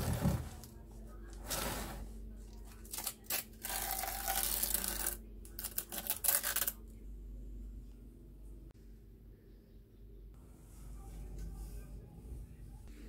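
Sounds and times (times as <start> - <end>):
masking tape being peeled: 2.9 - 6.8.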